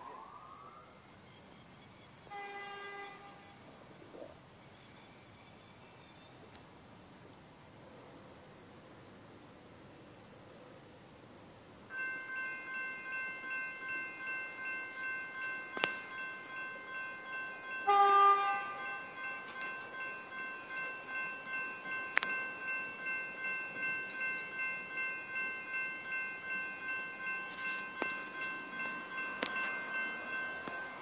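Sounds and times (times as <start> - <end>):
electric train horn blast: 2.3 - 3.5, 17.8 - 18.8
level crossing bell ringing: 11.9 - 31.0.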